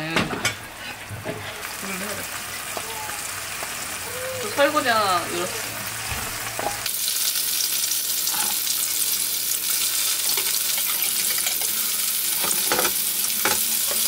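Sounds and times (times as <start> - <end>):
patties sizzling in frying pan: 0.5 - 14.0.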